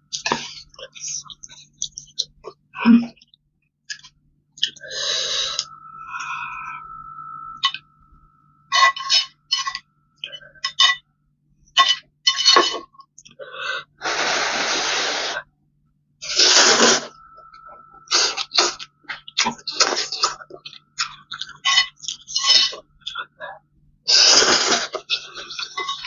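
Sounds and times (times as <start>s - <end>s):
slurping noodles: 14.0s - 15.4s, 16.2s - 17.1s, 24.1s - 26.0s.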